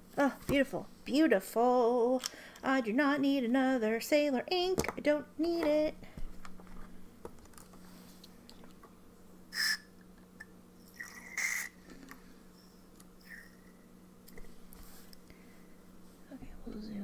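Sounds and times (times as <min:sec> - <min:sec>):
steady low hum: 0:00.0 - 0:17.0
short hissing noises: 0:09.5 - 0:09.9.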